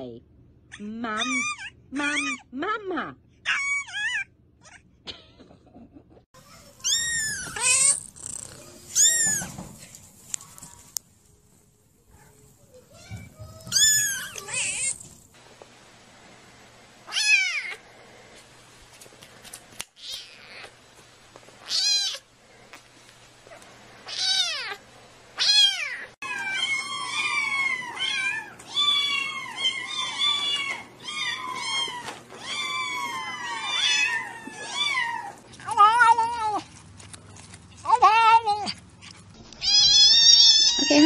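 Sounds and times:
group of kittens mewing: 0:06.5 - 0:09.7
kitten meowing: 0:06.8 - 0:09.6, 0:13.2 - 0:15.1, 0:21.6 - 0:22.2, 0:24.1 - 0:24.8, 0:39.6 - 0:41.0.

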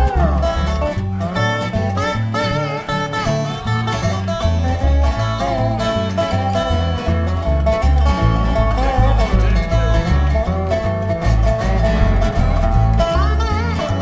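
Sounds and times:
slide resonator guitar lead: 0:00.0 - 0:14.0
strummed acoustic guitar: 0:00.0 - 0:14.0
upright bass walking: 0:00.0 - 0:14.0.

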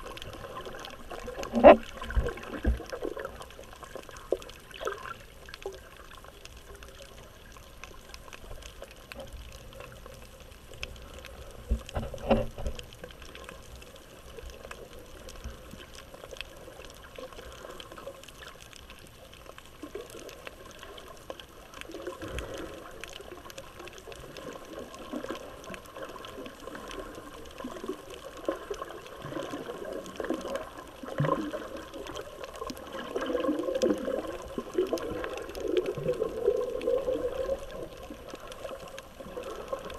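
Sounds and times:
faint clicks: 0:00.0 - 0:39.9
muffled underwater bubbling: 0:00.0 - 0:39.9
water gurgling: 0:00.0 - 0:39.9.

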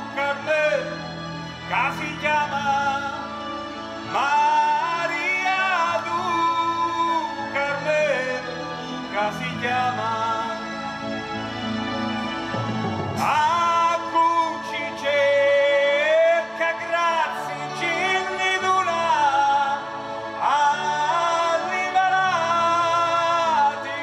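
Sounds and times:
instrumental backing: 0:00.0 - 0:24.0.

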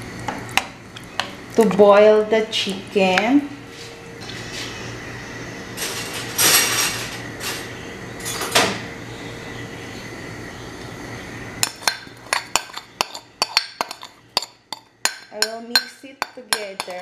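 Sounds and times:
utensil clinking against dishware: 0:11.6 - 0:17.0.

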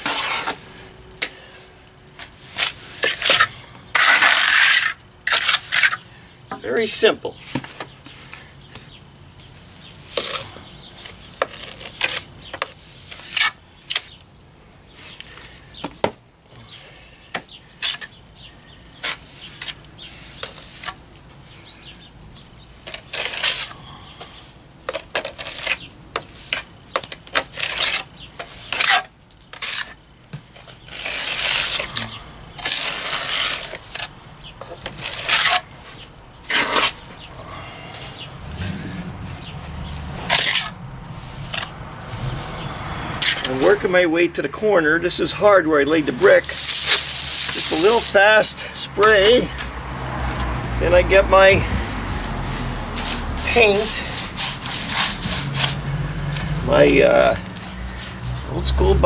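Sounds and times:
trowel scraping plaster on wall: 0:00.0 - 0:00.6, 0:02.4 - 0:06.0, 0:25.1 - 0:30.0, 0:30.6 - 0:34.1, 0:34.7 - 0:35.7, 0:36.4 - 0:37.1, 0:51.7 - 0:55.9.

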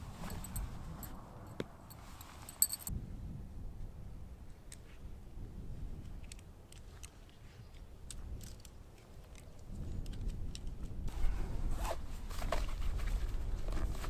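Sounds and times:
wind rumbling on microphone: 0:00.0 - 0:14.0
tent gear clicks and rustles: 0:00.1 - 0:01.2, 0:01.9 - 0:02.9.

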